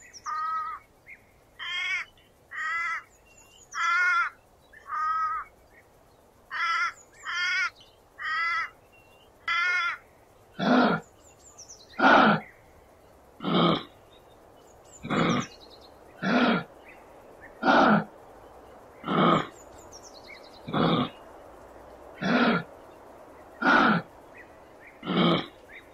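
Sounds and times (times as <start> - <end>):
crow cawing: 0.2 - 0.8, 1.6 - 3.1, 3.7 - 5.5, 6.5 - 8.8, 9.4 - 11.0, 23.6 - 24.1
deep rasping grunts: 15.0 - 15.5, 16.2 - 16.7, 17.6 - 18.1, 19.0 - 19.6, 20.7 - 21.2, 22.2 - 22.7, 23.6 - 24.1, 25.0 - 25.6.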